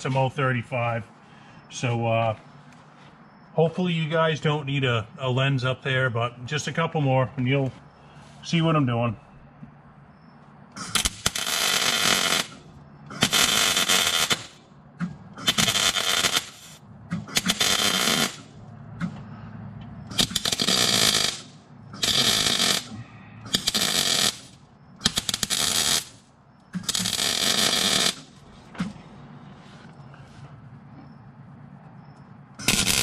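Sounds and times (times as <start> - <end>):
welder arc crackling: 10.8 - 14.6, 15.4 - 18.5, 20.1 - 22.9, 23.5 - 28.4, 32.6 - 33.0.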